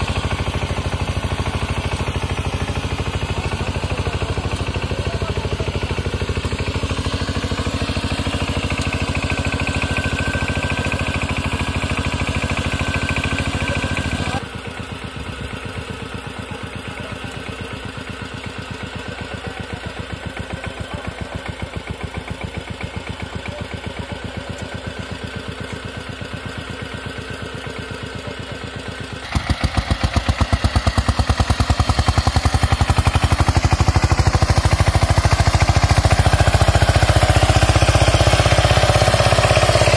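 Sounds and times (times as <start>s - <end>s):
diesel tiller engine running: 0.0s - 39.9s.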